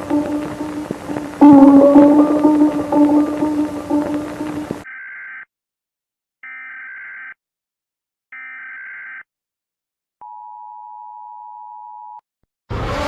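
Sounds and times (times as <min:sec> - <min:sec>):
long steady alert tone: 0:00.0 - 0:04.8
electronic alert beeps: 0:01.4 - 0:04.7.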